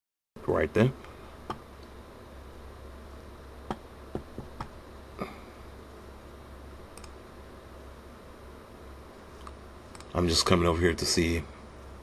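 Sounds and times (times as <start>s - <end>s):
steady low hum: 0.4s - 12.0s
computer mouse clicks: 6.9s - 7.2s, 9.4s - 10.1s.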